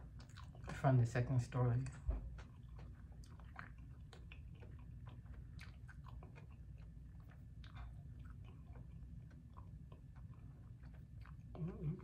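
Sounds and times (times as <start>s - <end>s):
person chewing: 0.0s - 0.8s, 2.1s - 12.0s.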